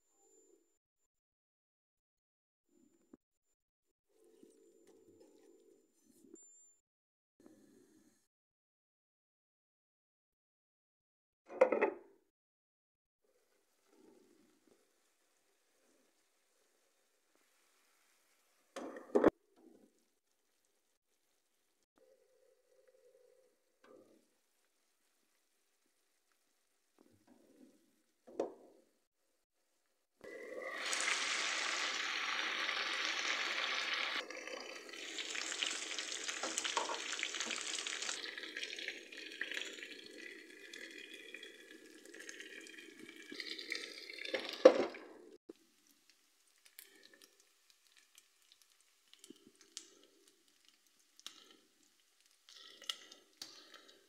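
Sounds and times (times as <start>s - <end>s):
chicken sizzling in frying pan: 30.3s - 40.0s, 45.6s - 53.0s.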